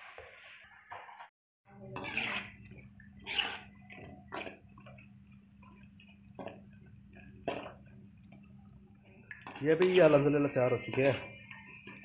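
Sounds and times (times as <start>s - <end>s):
metal spoon scraping a pan: 1.8s - 5.0s, 9.4s - 12.0s
frying food sizzling in oil: 1.8s - 12.0s.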